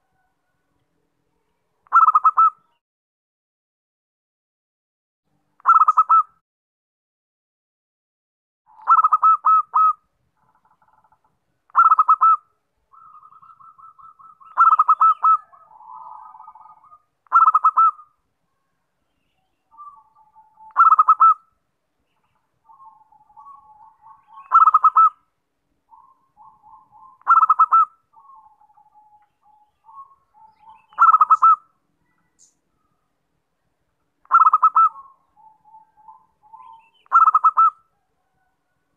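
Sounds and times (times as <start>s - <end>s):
dove cooing trills: 1.9s - 2.8s, 5.6s - 6.3s, 8.7s - 11.1s, 11.7s - 18.2s, 19.7s - 21.5s, 22.6s - 25.3s, 25.9s - 32.9s, 34.2s - 38.9s.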